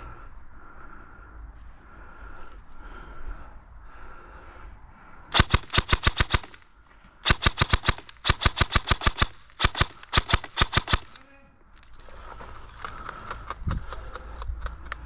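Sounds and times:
airsoft rifle bursts: 0:05.3 - 0:11.5.

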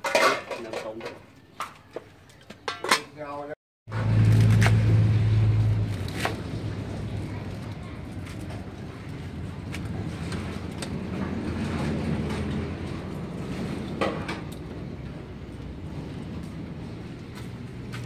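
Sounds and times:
low rumble: 0:03.9 - 0:18.0
cabbage leaves snapping and tearing: 0:04.1 - 0:04.9.

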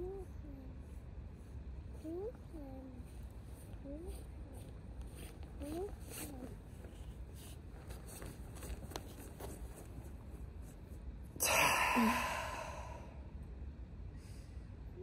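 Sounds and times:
faint low rumble: 0:00.0 - 0:15.0
person exhaling loudly: 0:11.4 - 0:13.2.

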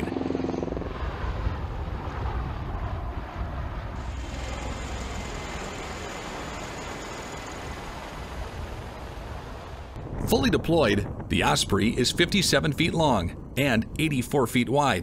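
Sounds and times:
aircraft rotors rumbling overhead: 0:00.0 - 0:15.0
high whine: 0:03.8 - 0:10.4.

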